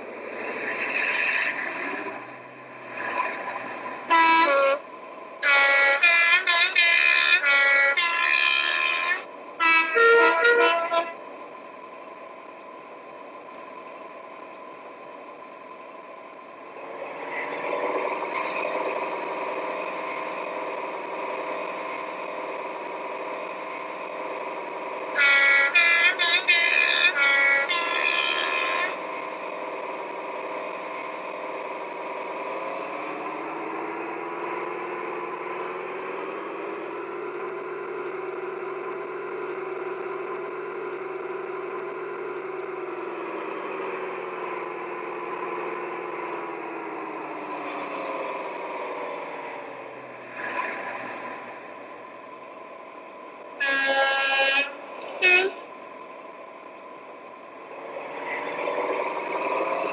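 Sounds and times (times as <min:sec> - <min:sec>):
diesel engine droning: 0:00.0 - 0:59.9
locomotive horn blasts: 0:04.0 - 0:11.3, 0:25.1 - 0:29.0, 0:53.6 - 0:55.8.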